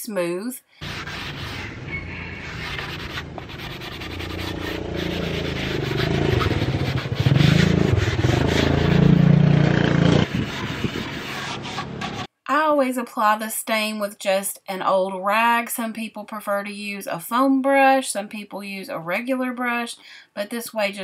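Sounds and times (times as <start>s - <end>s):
hand sanding wood: 0.8s - 9.5s, 10.2s - 12.3s
four-wheeler engine running: 4.2s - 10.3s.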